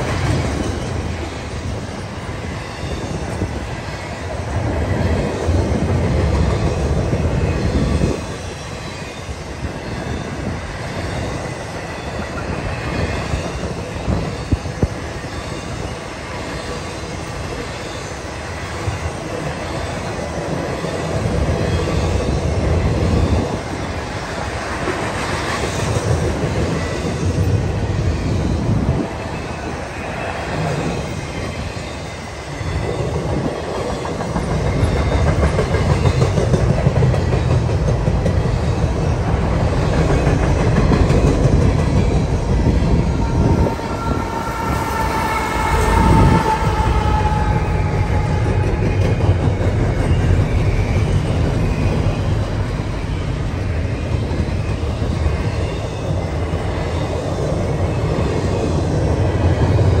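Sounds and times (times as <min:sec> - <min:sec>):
diesel locomotive passing: 0:00.0 - 1:00.0
train wheels rumbling on rails: 0:00.0 - 1:00.0
locomotive high whine: 0:37.2 - 1:00.0.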